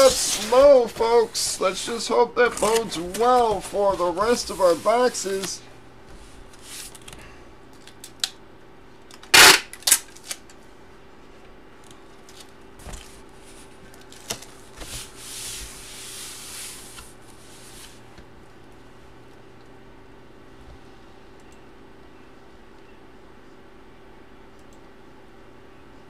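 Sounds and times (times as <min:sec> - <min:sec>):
paper and plastic rustling: 0:00.0 - 0:05.6, 0:12.2 - 0:18.0
wrapper ripping: 0:09.6 - 0:10.4.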